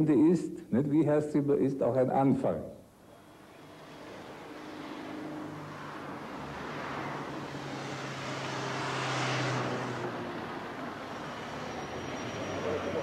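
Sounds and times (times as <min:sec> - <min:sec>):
motor vehicle passing: 0:03.1 - 0:13.0.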